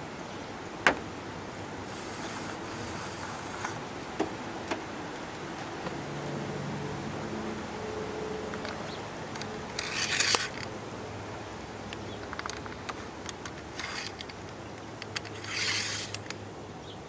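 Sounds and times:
plastic and metal scraping: 9.4 - 10.7, 12.2 - 16.4
small clicks: 11.9 - 16.4.

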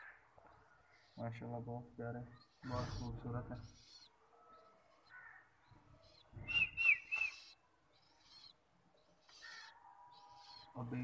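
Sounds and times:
bird chirping: 0.0 - 11.0.

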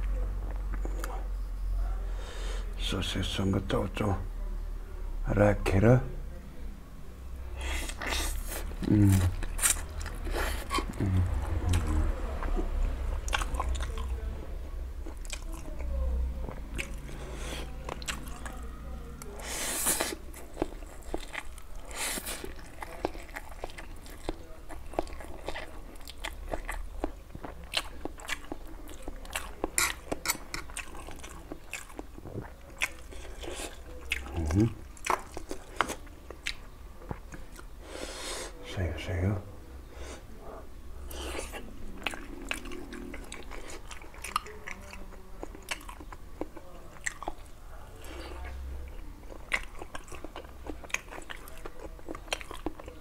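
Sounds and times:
person chewing noodles: 7.6 - 14.2, 15.0 - 18.6, 19.2 - 38.5, 41.1 - 53.0.

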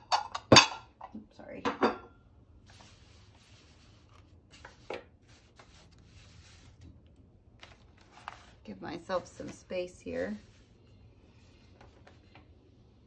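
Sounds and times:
marker strokes on paper: 2.7 - 6.8, 9.1 - 12.2.

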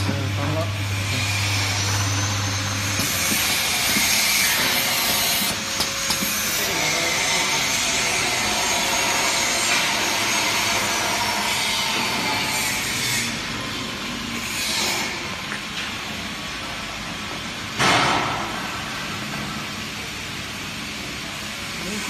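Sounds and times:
low machine hum: 0.0 - 22.0
machine hissing: 0.8 - 11.6.

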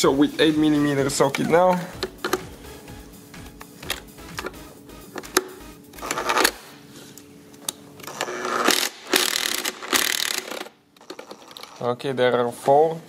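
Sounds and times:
impact driver running: 8.1 - 11.3.

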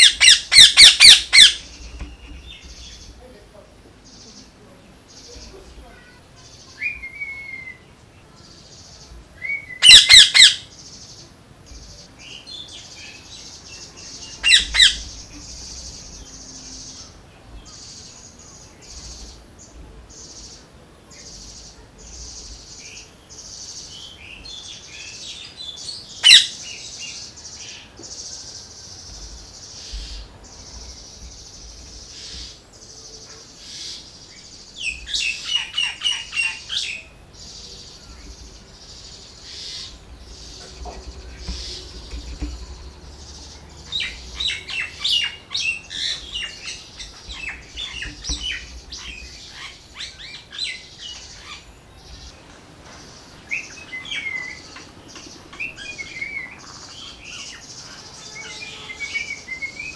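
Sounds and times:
parakeet squawking: 0.0 - 1.7, 9.8 - 10.6, 14.4 - 15.2, 26.2 - 26.5.

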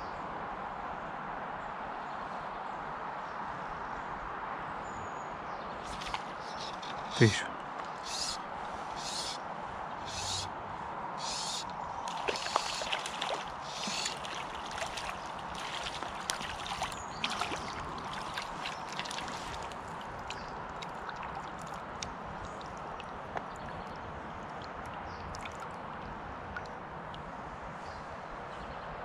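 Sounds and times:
fish splashing in water: 5.8 - 7.3, 11.2 - 26.8
river flowing: 5.8 - 27.7
water dripping: 11.2 - 27.2.

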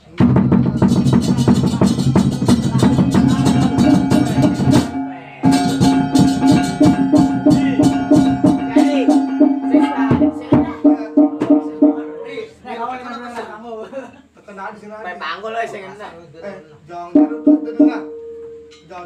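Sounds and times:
gamelan playing gongs and drums: 0.3 - 12.5, 17.2 - 18.9.

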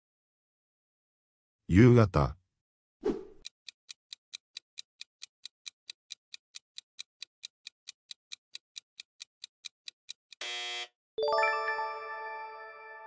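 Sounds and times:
clock ticking: 3.4 - 10.4.

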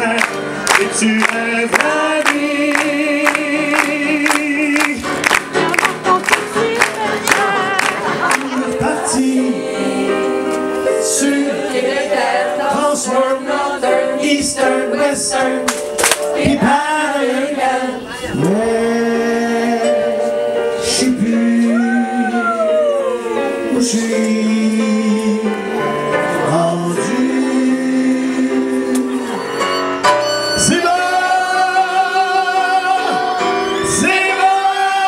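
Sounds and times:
man singing into microphone: 0.0 - 5.2, 7.4 - 10.3, 14.0 - 15.4, 16.4 - 29.5, 30.4 - 35.0
electric keyboard: 0.0 - 35.0.

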